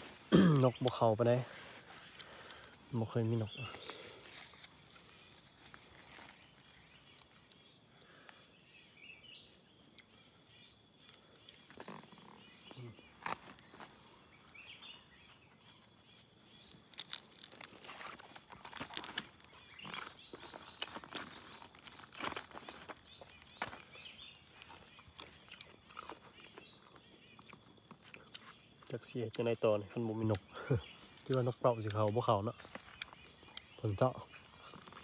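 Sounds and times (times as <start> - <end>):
hands rustling leaves: 0.0 - 7.5, 16.6 - 25.4.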